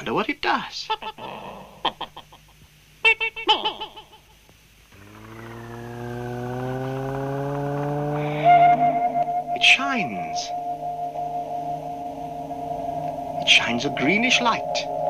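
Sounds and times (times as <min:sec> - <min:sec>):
machine electronic hum: 0:00.0 - 0:15.0.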